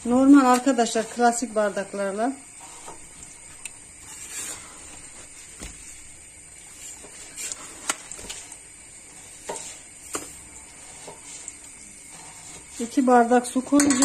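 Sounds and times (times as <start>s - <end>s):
faint room hiss: 0.0s - 14.0s
kitchen things clicking and knocking: 13.2s - 14.0s.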